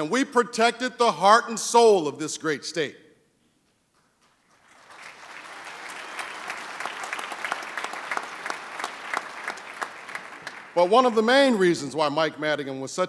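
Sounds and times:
audience applauding: 4.4 - 11.9.

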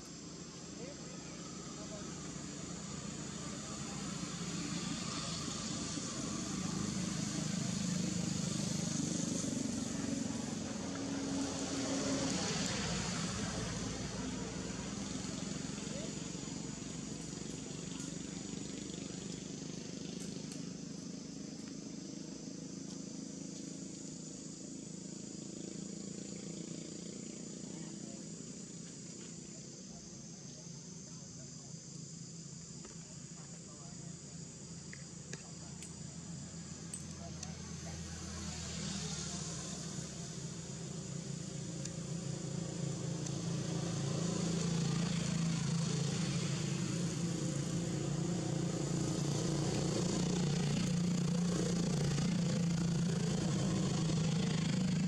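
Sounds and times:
constant hiss: 0.0 - 55.0
high-pitched insect drone: 0.0 - 55.0
small engine humming: 0.0 - 55.0.

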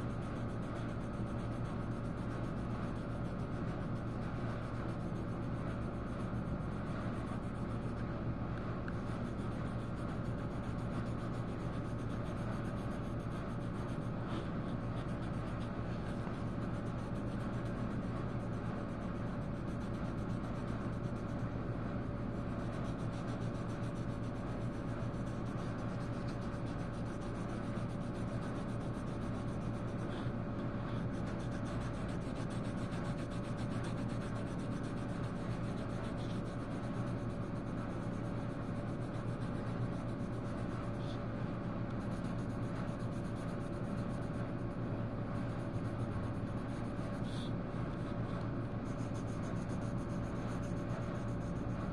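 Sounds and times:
scratchy colouring on paper: 0.0 - 8.0, 8.9 - 41.3, 42.0 - 51.9
steady hum: 0.0 - 51.9.

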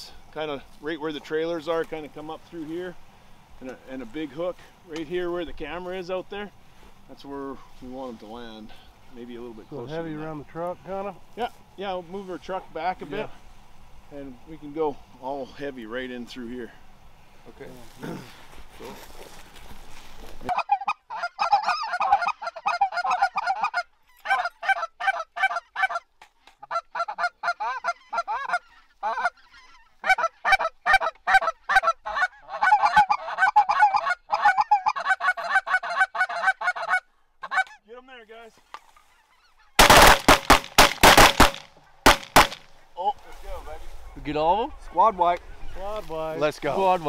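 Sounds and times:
geese honking: 20.4 - 37.9, 38.7 - 47.0
shotgun blasts: 39.8 - 42.7.

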